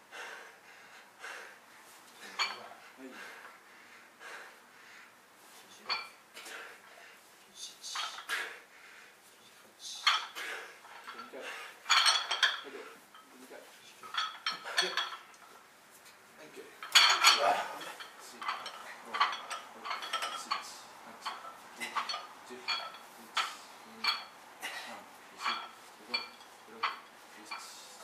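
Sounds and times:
barbell plates clinking: 2.2s - 2.7s, 5.9s - 6.2s, 7.9s - 8.4s, 10.0s - 13.4s, 14.0s - 15.6s, 16.8s - 28.0s.

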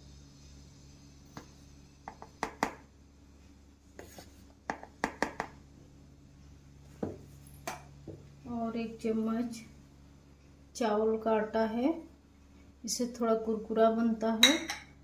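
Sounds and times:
faint low hum: 5.4s - 15.0s.

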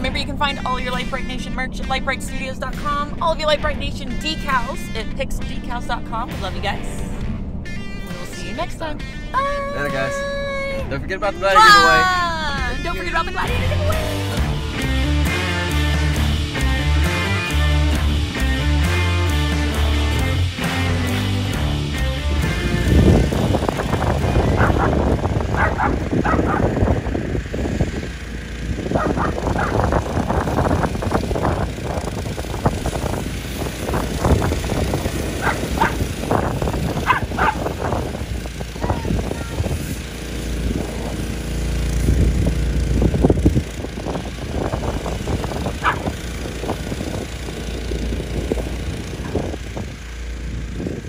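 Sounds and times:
toy car motor running: 22.9s - 51.0s
dog barking and yipping: 24.4s - 26.9s, 28.9s - 29.9s, 35.3s - 37.9s, 45.8s - 46.2s.

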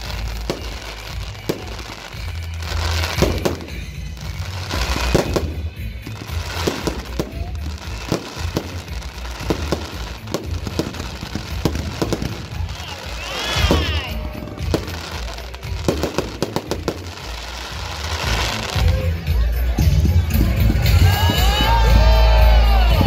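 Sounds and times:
fireworks bangs: 0.0s - 23.0s
fireworks crackling: 0.0s - 23.0s
music: 0.0s - 23.0s.

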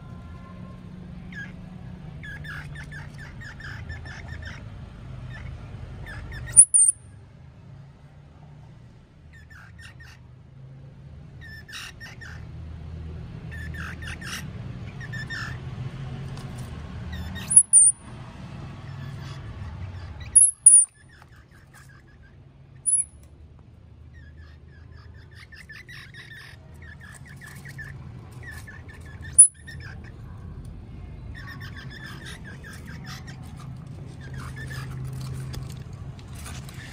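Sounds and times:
squirrels squeaking: 1.2s - 7.2s, 11.4s - 12.4s, 13.5s - 15.6s, 17.1s - 18.2s, 18.8s - 23.4s, 24.0s - 36.9s
shrill chirp: 5.3s - 7.2s, 17.2s - 18.1s, 18.9s - 23.3s, 24.1s - 30.4s.

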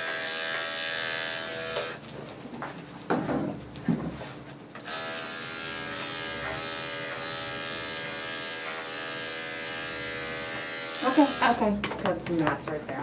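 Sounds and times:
electric clippers buzzing: 0.0s - 2.0s, 4.8s - 11.7s.

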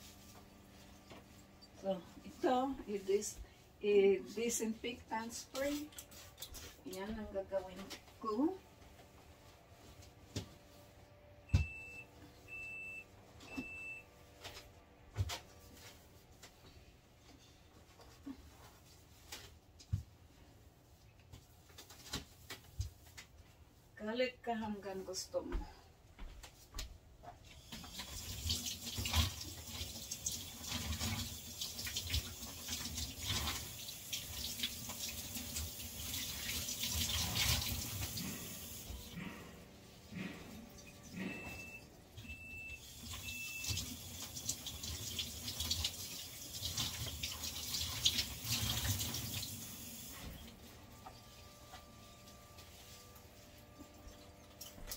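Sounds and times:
refrigerator alarm beeping: 11.4s - 14.2s, 40.8s - 44.0s
water splashing into sink: 27.8s - 38.9s, 43.0s - 50.1s.

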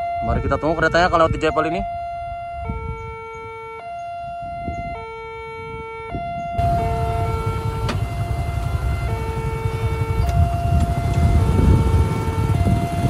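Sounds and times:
level crossing two-tone siren: 0.0s - 13.0s
low rumble: 6.6s - 13.0s.

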